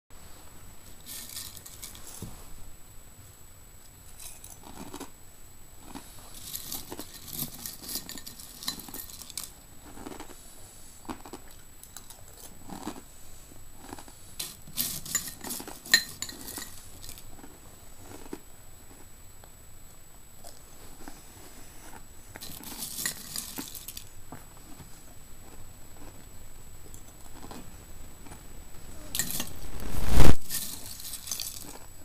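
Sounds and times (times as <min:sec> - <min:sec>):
cereal flakes rustling in bowl: 0:01.0 - 0:02.3, 0:05.8 - 0:10.3, 0:13.8 - 0:17.5, 0:22.4 - 0:24.1, 0:28.9 - 0:31.9.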